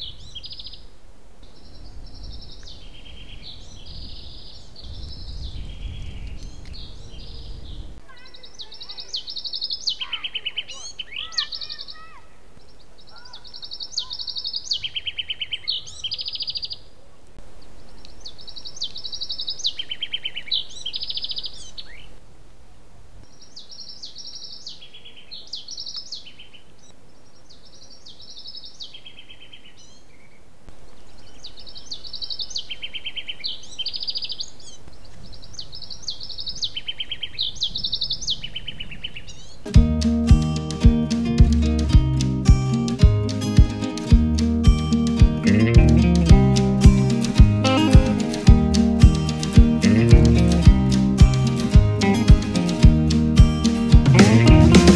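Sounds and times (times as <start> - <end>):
songbird singing high trills: 0.0 - 16.9, 17.6 - 22.1, 23.3 - 39.7.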